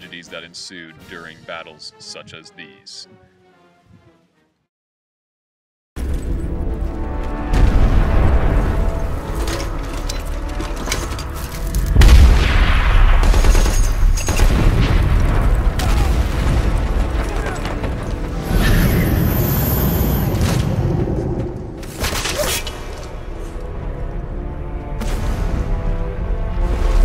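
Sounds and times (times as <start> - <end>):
voices: 0.0 - 3.1
battle music: 0.0 - 4.5, 6.3 - 13.8, 23.2 - 27.0
heavy explosion boom: 7.5 - 9.1, 12.0 - 13.4
blasts and gunfire: 12.0 - 22.2.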